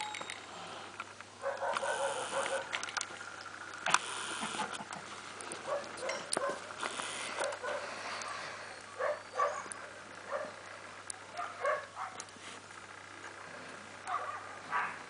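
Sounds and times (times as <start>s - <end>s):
sharp clicks: 0.0s - 8.9s.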